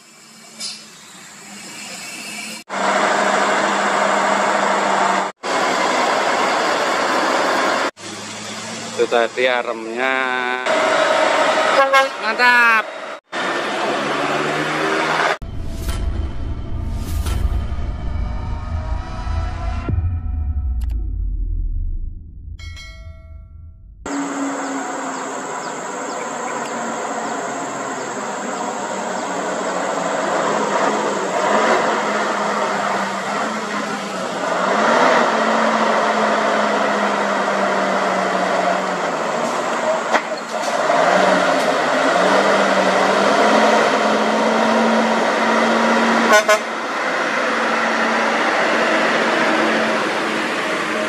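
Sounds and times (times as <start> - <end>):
truck diesel engine under load: 0.5 - 15.6, 24.0 - 51.0
loud engine blip: 15.4 - 26.8.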